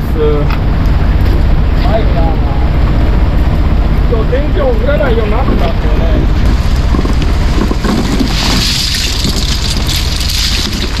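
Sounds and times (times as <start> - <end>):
boat engine running: 0.0 - 11.0
water hissing: 8.2 - 11.0.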